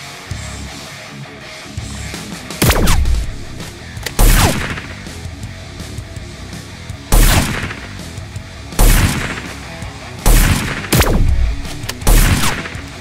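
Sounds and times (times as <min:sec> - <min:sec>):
background music: 0:00.0 - 0:13.0
gunshot-like blasts: 0:02.6 - 0:05.0, 0:07.1 - 0:07.8, 0:08.8 - 0:09.5, 0:10.3 - 0:12.8.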